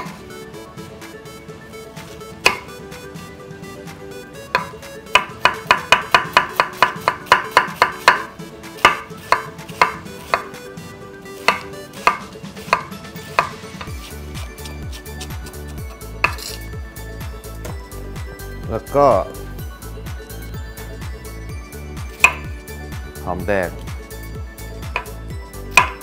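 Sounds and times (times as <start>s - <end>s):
knife chopping on wooden board: 0.0s - 0.2s, 2.4s - 2.7s, 4.5s - 10.6s, 11.4s - 15.6s, 16.2s - 16.6s, 22.1s - 22.5s, 24.9s - 26.0s.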